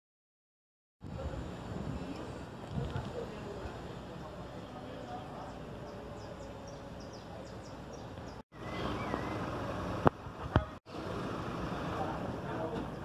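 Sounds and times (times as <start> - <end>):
outdoor ambient noise: 1.0 - 13.0
faint high bird chirps: 5.4 - 9.7.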